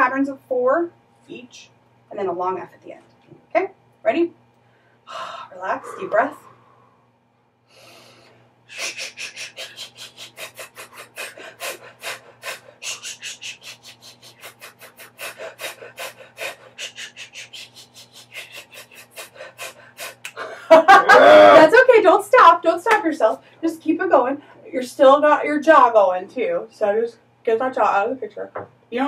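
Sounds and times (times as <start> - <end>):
deep inhale: 4.6 - 17.6
short hissed breath pulses: 5.1 - 7.1, 7.7 - 20.2.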